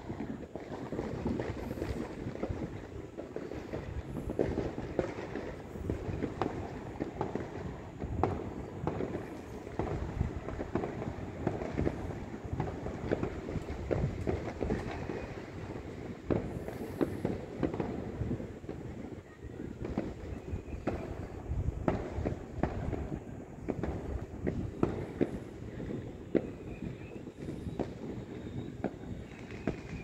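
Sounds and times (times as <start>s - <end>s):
distant fireworks popping: 0.0s - 30.0s.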